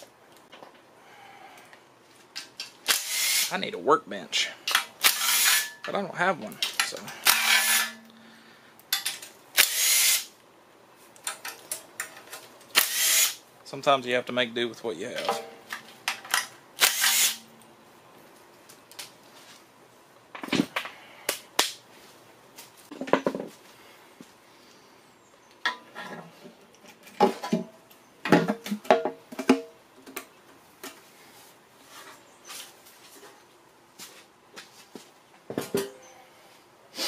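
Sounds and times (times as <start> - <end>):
cordless impact driver burst: 2.9 - 3.5, 5.0 - 5.7, 7.2 - 8.0, 9.6 - 10.3, 12.8 - 13.4, 16.8 - 17.4.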